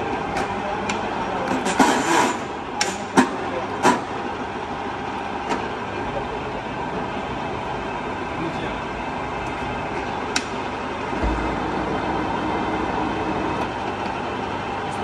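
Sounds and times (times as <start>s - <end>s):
boring machine humming: 11.0s - 14.8s.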